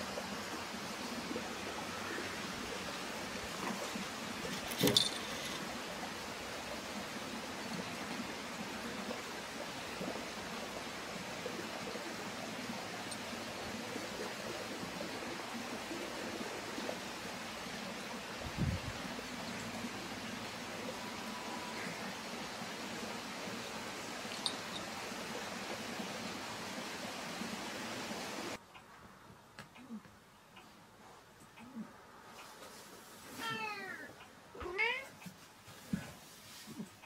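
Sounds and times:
outdoor background hiss: 0.0 - 37.0
cat collar bells jingling: 24.3 - 24.9.

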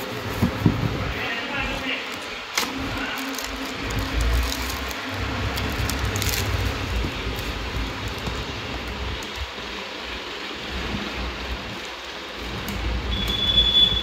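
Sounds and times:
plastic and cardboard rustling: 0.0 - 14.0.

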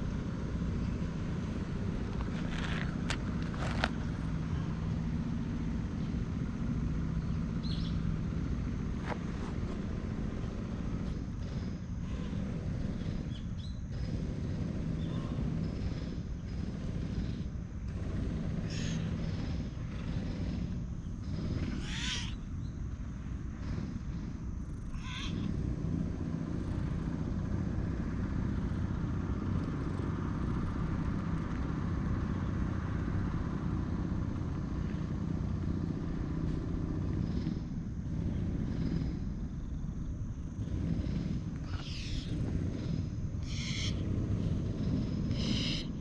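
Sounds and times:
cat purring: 9.5 - 21.8, 35.1 - 39.5, 40.5 - 43.2.

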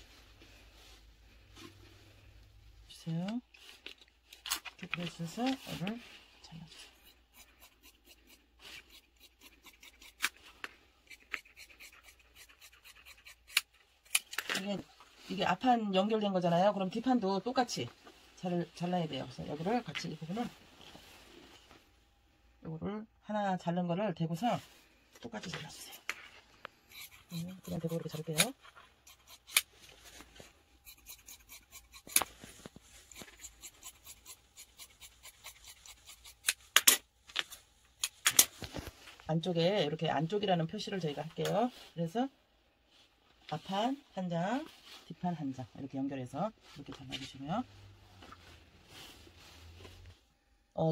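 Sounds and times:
shears snipping fabric: 6.8 - 10.4, 11.1 - 14.4, 26.9 - 29.7, 30.9 - 37.0.

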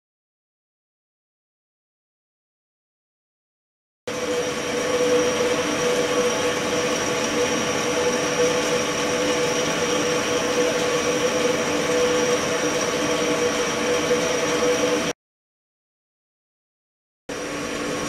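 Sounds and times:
ultrasonic tank hissing buzz: 4.1 - 15.1, 17.3 - 18.0.

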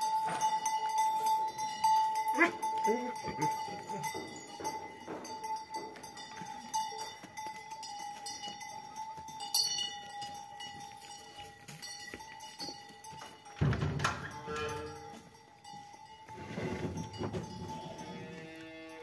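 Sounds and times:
cattle hooves knocking: 0.0 - 18.8.

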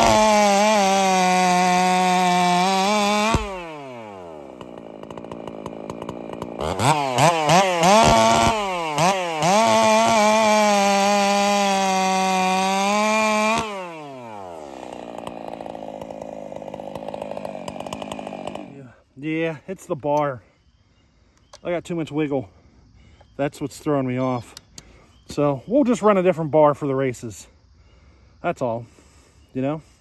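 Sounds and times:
chainsaw revving and idling: 0.0 - 19.1.

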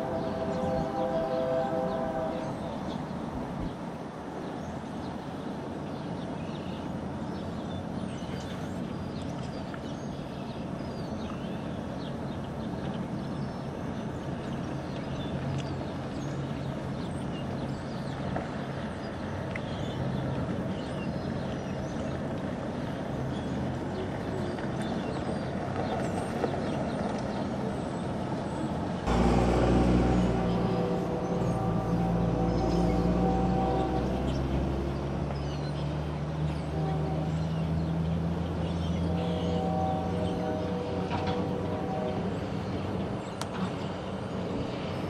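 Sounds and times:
low background rumble: 29.1 - 36.2.

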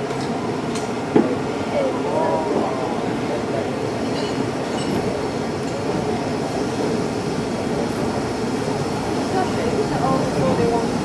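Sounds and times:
steam locomotive running on rails: 0.0 - 11.0.

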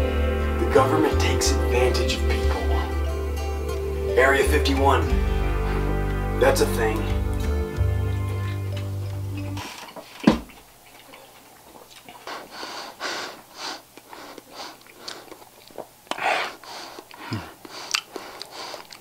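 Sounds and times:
background music: 0.0 - 9.8
thump: 10.2 - 10.5
person breathing close to microphone: 16.1 - 19.0.

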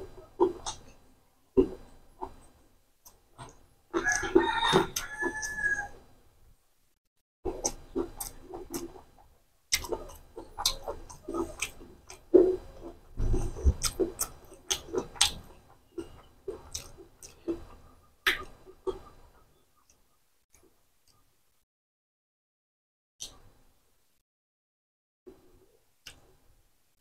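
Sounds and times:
wet chewing with lip smacks: 0.3 - 1.0, 7.5 - 21.2.

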